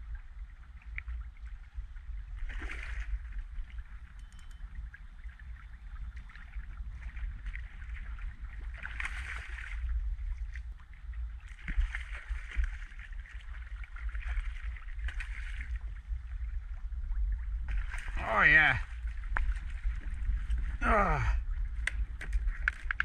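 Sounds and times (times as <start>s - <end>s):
wind rumble on microphone: 0.0s - 23.0s
fish thrashing and water splashing: 2.4s - 3.4s, 7.0s - 10.0s, 11.5s - 16.1s, 17.5s - 20.8s.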